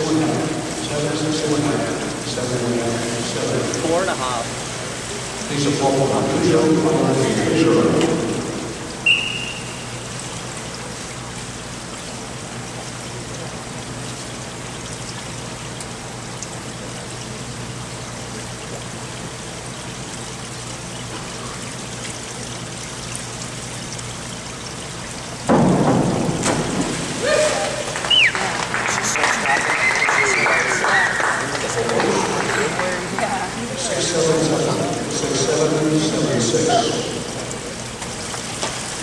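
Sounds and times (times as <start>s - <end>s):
pool water trickling: 0.0s - 39.0s
short high whistle: 9.0s - 10.0s
diver splashing into pool: 25.5s - 31.2s.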